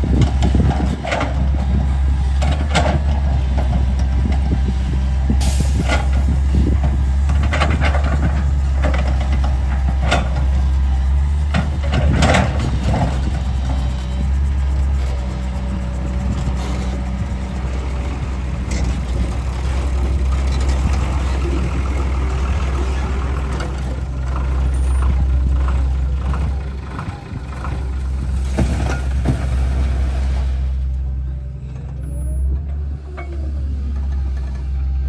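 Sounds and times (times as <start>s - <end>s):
diesel engines rumbling: 0.0s - 35.0s
rocks crashing into truck bed: 28.4s - 30.2s.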